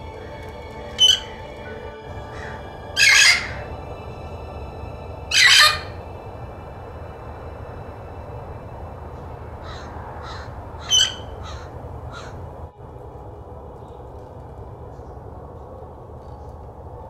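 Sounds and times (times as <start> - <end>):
parrot harsh calls: 0.9 - 3.7, 5.3 - 6.0, 9.6 - 12.4.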